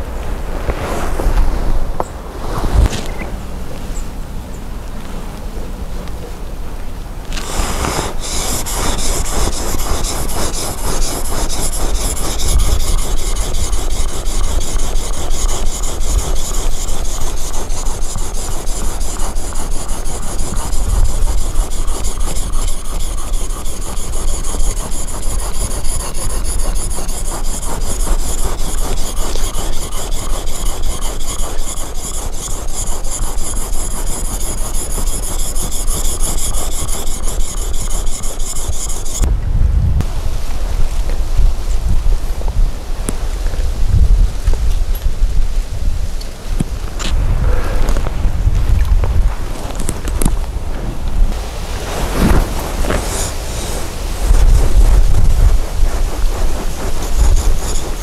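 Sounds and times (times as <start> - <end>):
chisel scraping on wet whetstone: 7.3 - 39.3, 52.4 - 58.0.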